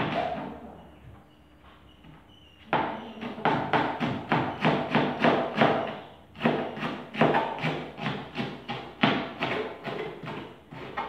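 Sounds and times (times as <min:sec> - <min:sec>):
knife chopping on cutting board: 0:02.7 - 0:11.0.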